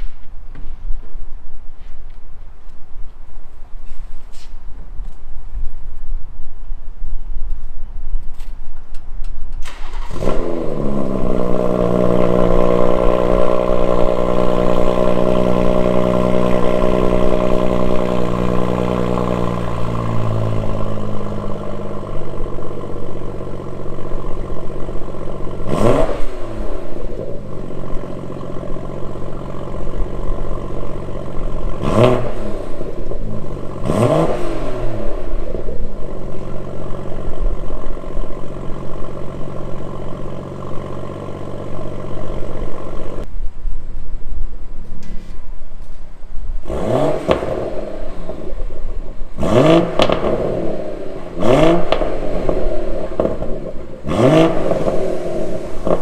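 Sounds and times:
car engine starting and idling: 7.4s - 43.3s, 46.6s - 56.0s
engine throttle blips: 9.5s - 43.3s, 46.6s - 56.0s.

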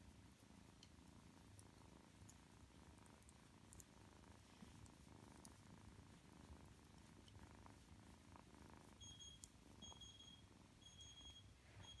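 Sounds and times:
kitten purring: 0.0s - 12.0s
faint high electronic beep: 9.0s - 12.0s.

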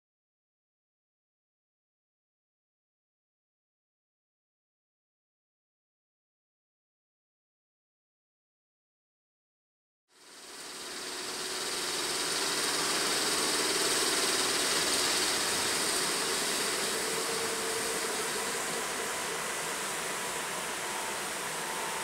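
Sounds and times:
locomotive machinery drone: 10.2s - 22.0s
faint high tone: 20.1s - 22.0s.

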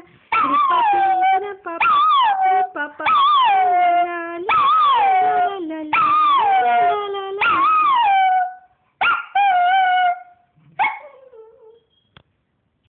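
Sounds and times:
dog yelp: 0.3s - 1.2s, 4.5s - 5.4s, 7.4s - 12.0s
dog howling: 0.4s - 8.7s.

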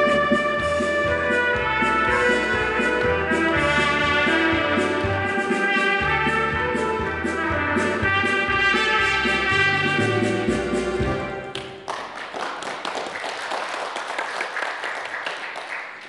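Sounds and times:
backing track with bass and percussion: 0.0s - 11.3s
trumpet melody: 0.0s - 11.6s.

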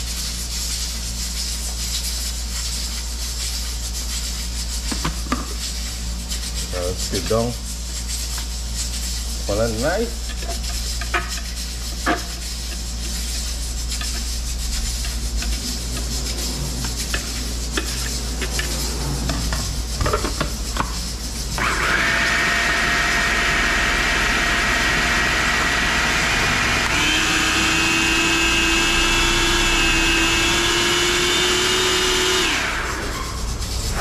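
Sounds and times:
blender motor whining: 21.6s - 33.3s.

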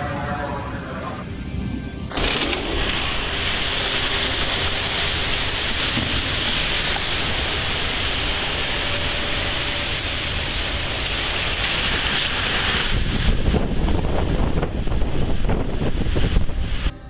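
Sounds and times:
heavy rain hissing: 0.0s - 17.0s.

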